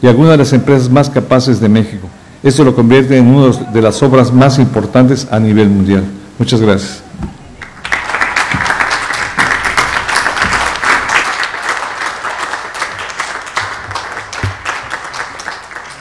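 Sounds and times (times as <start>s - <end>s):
applause: 7.6s - 16.0s.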